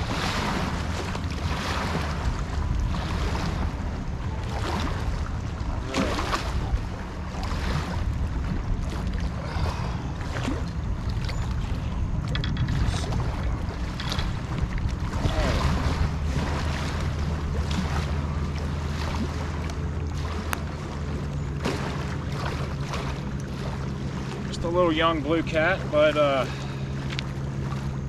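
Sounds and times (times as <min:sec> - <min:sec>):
wind on microphone: 0:00.0 - 0:19.5
motorboat engine humming: 0:00.0 - 0:28.0
small waves washing against bank: 0:00.0 - 0:28.0.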